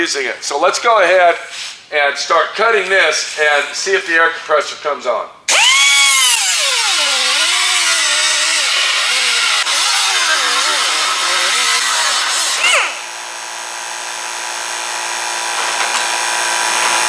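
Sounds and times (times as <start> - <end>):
pneumatic cutoff wheel cutting metal: 5.5 - 13.4
air compressor hum: 5.5 - 17.0.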